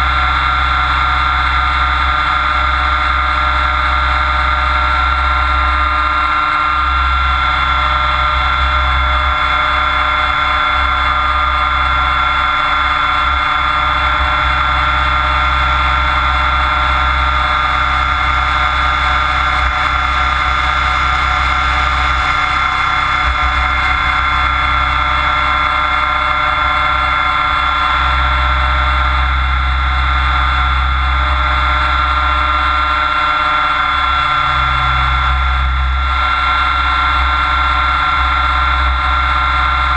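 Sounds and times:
motor whine: 0.0s - 39.9s
rotor drone: 0.0s - 39.9s.

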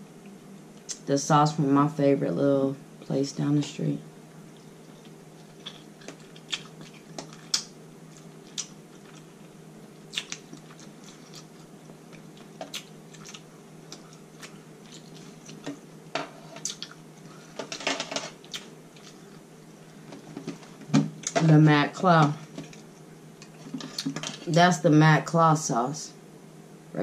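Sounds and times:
wet chewing and lip smacks: 4.6s - 15.6s.

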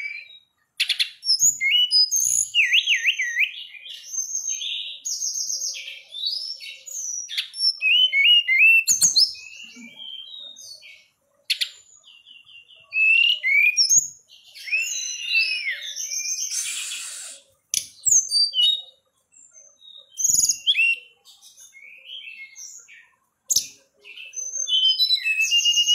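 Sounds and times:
songbird singing: 0.0s - 25.9s.

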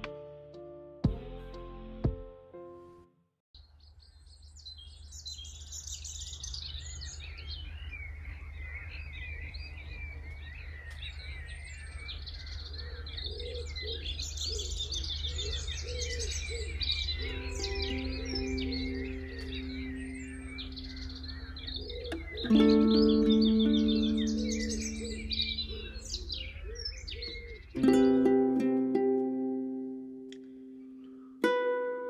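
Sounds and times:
low repeated bird calls: 3.6s - 28.0s
songbirds chirping and singing: 3.6s - 28.4s.

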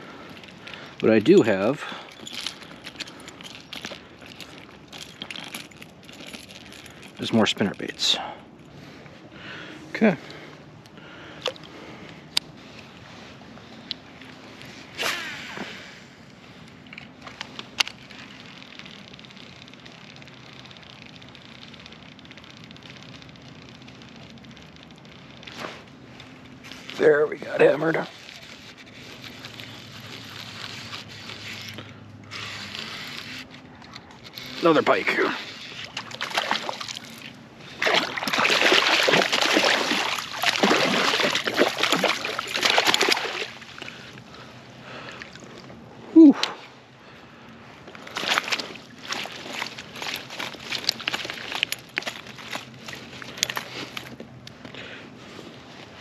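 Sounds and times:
fishing line whirring off reel: 14.6s - 16.1s, 17.0s - 44.3s
fish thrashing and splashing: 35.7s - 45.7s, 47.8s - 54.2s.

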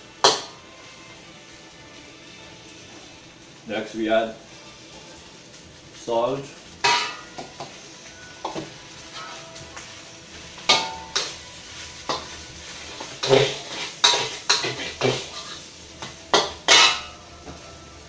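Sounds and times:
metal spatula scraping wok: 10.5s - 15.8s, 16.4s - 17.2s.

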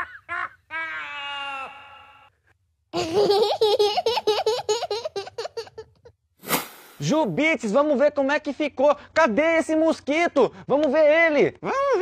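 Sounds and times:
high cartoonish laughter: 0.0s - 2.2s, 3.0s - 6.1s.

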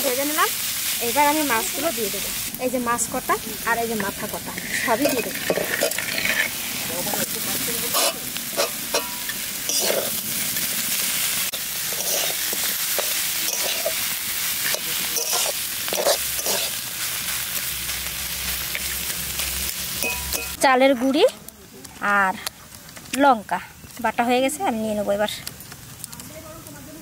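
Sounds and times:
food sizzling in a wok: 0.0s - 21.3s
metal spatula scraping pan: 4.0s - 6.6s, 7.9s - 10.2s, 11.9s - 14.0s, 14.6s - 16.8s.

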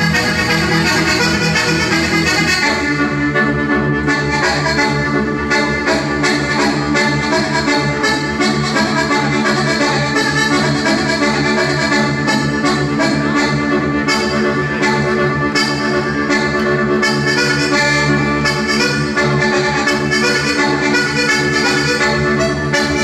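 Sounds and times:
button accordion dance tune: 0.0s - 23.0s.

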